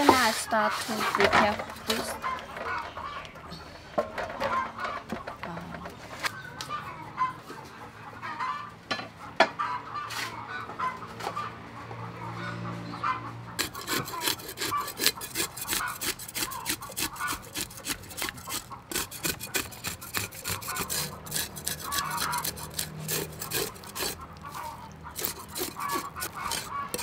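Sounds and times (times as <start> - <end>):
knife scraping fish scales: 13.6 - 27.0.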